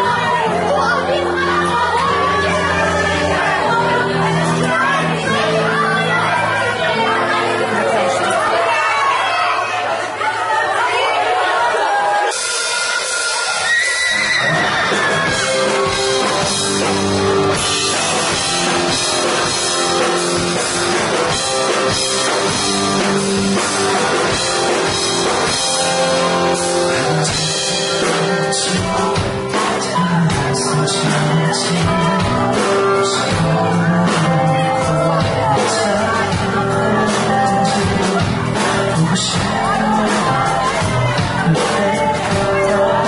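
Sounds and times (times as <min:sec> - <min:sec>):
keyboard: 0:00.0 - 0:43.0
drum kit: 0:12.2 - 0:43.0
electric guitar: 0:12.3 - 0:43.0
man singing: 0:14.1 - 0:43.0.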